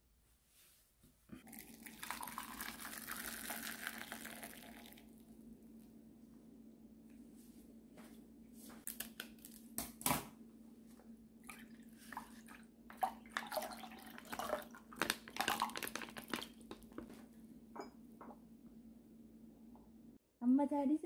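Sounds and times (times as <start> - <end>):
liquid trickling into a mug: 1.4 - 5.2, 11.5 - 16.6
steady low hum: 4.9 - 8.8, 17.1 - 20.2
plastic pouch crinkling: 14.6 - 17.1.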